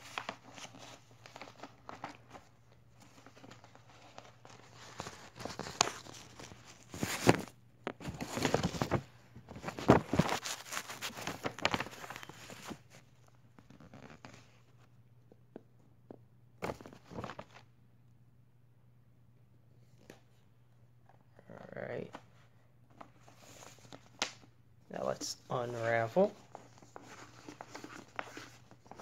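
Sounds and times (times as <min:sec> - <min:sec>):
paper poster rustling: 0:00.0 - 0:14.9, 0:22.0 - 0:29.0.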